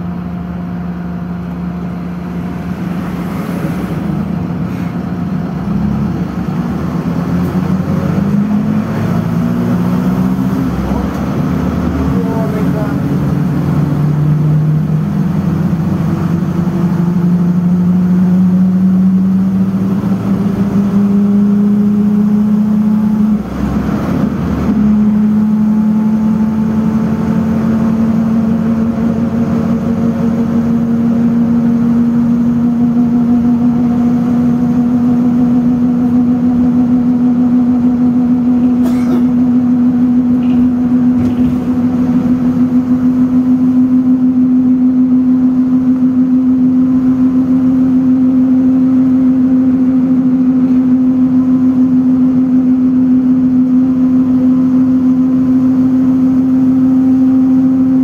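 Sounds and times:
bus engine hum rising: 0.0 - 58.0
brief rumble: 1.8 - 5.6, 38.6 - 39.4, 40.3 - 42.6.

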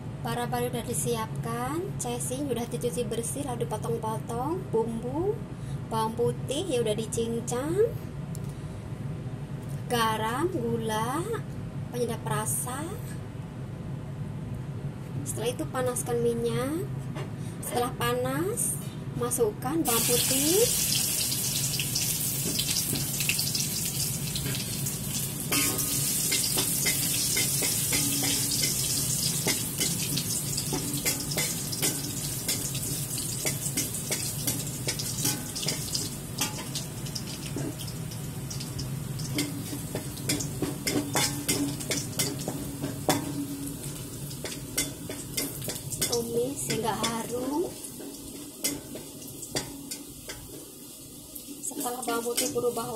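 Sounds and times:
garlic sizzling in hot oil: 19.8 - 52.9
spatula scraping wok: 24.3 - 37.9, 39.3 - 50.6.

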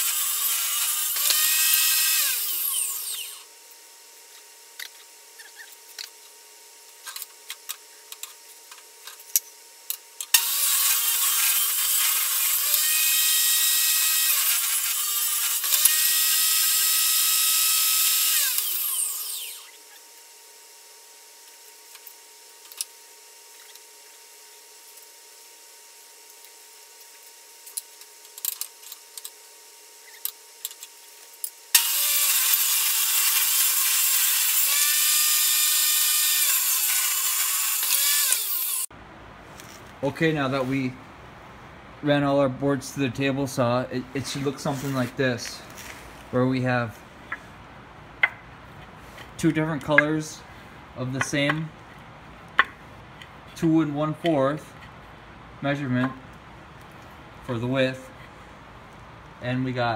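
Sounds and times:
table saw ripping boards: 0.0 - 3.5, 10.3 - 19.9, 31.8 - 38.9.

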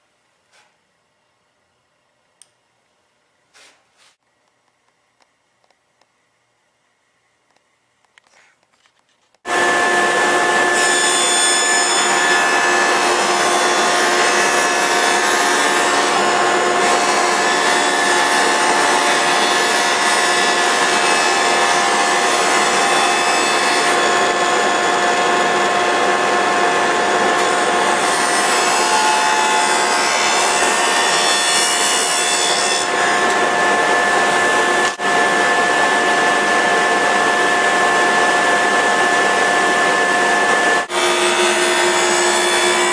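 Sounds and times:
power tool cutting wood: 9.5 - 42.9.

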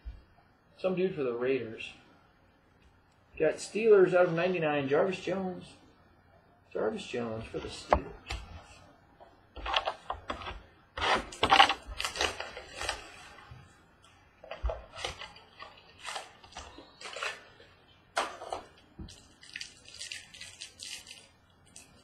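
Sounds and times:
cards rustling: 9.6 - 13.4, 14.4 - 18.7
plastic wrapper crinkling: 11.3 - 13.4, 14.4 - 22.0.

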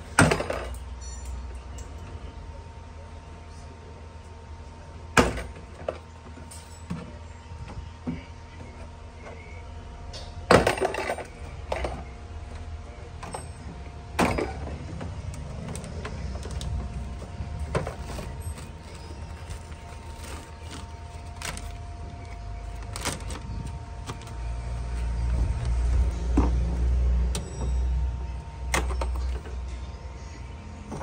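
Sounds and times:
clicks and rustles of handling: 14.9 - 26.6.

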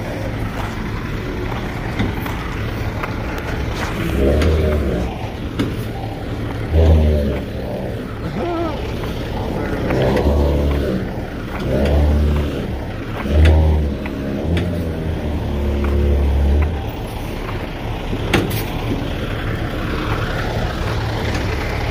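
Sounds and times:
diesel truck engine revving: 0.0 - 21.9.

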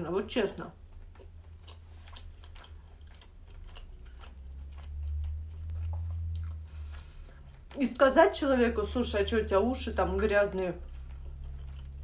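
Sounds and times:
person chewing food: 0.8 - 8.2, 10.6 - 12.0
low rumble: 4.0 - 12.0.

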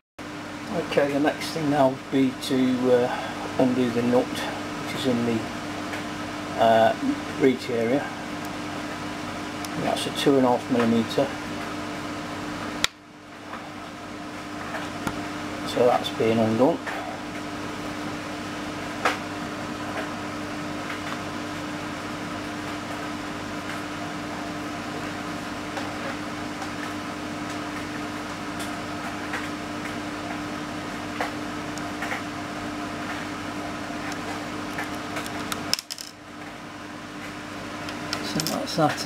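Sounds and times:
machine hum: 0.2 - 39.0.

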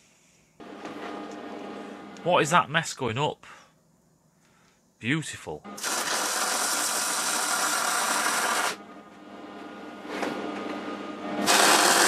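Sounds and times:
welding arc crackling and hissing: 5.8 - 8.8, 11.4 - 12.0.

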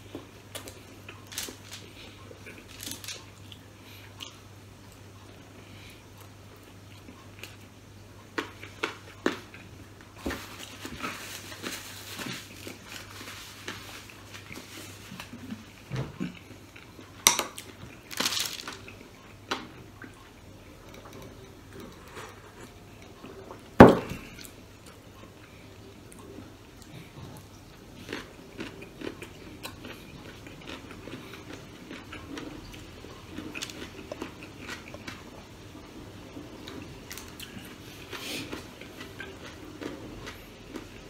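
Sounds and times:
chewing: 0.1 - 41.0
food clicks and rustles on paper: 0.5 - 3.6, 8.4 - 15.8, 17.3 - 19.7.

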